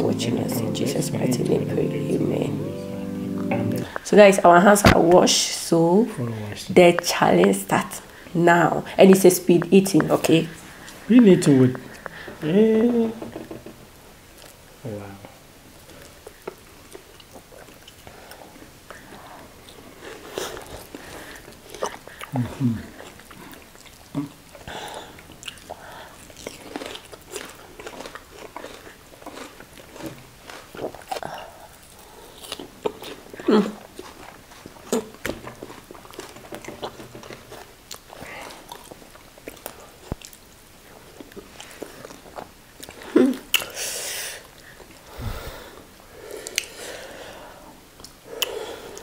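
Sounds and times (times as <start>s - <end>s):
chewing and lip smacks: 15.9s - 43.7s.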